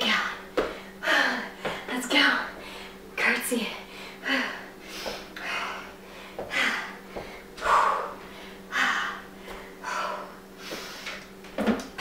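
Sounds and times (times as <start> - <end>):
woman breathing hard: 2.6 - 3.0, 3.8 - 11.3.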